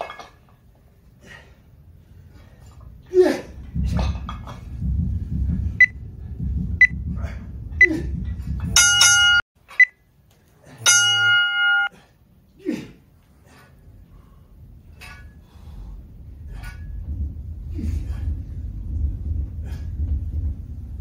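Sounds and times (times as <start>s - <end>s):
low rumble of movement: 1.8s - 9.4s, 13.8s - 21.0s.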